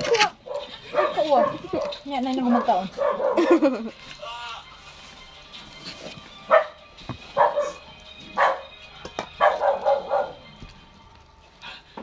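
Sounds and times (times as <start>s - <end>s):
dog barking: 0.0s - 3.6s, 6.5s - 8.8s, 9.4s - 10.5s.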